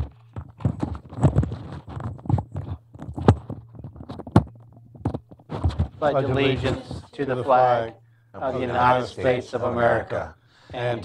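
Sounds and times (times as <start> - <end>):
chairs knocking and bumping: 0.0 - 7.1
people shuffling: 5.5 - 11.0.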